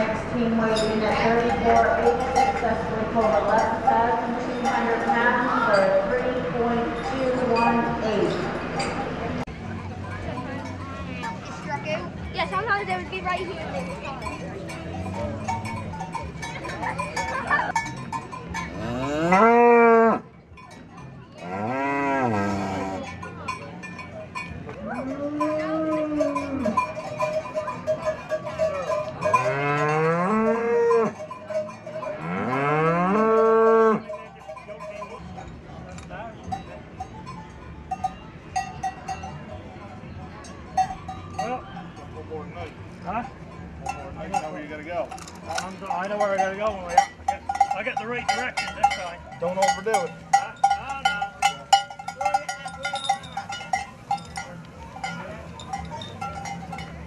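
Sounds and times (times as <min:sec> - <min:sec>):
metal bells clanking: 0:00.0 - 0:57.0
ox mooing: 0:21.4 - 0:23.1.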